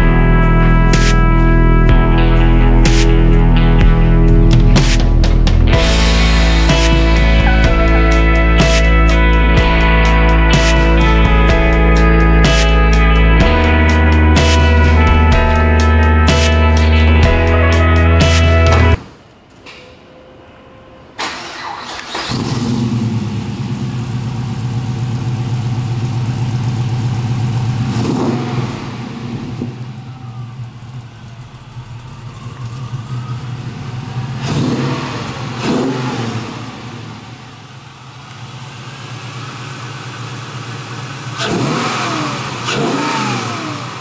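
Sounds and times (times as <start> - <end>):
car engine idling: 0.0 - 19.0, 21.2 - 44.0
engine revving: 0.0 - 19.0, 21.4 - 44.0
car engine cranking and starting: 21.2 - 44.0.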